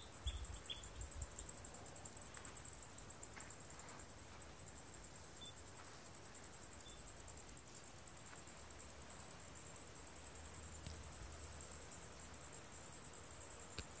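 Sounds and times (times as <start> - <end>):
insects chirring: 0.0 - 14.0.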